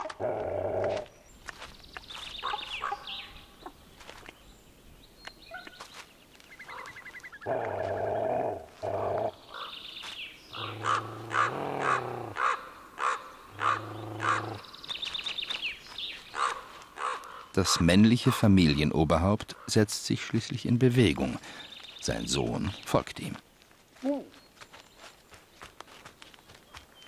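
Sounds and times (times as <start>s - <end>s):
wolves short harsh calls: 10.6s - 14.6s, 16.3s - 17.8s
wolves growling and whining: 13.6s - 14.6s.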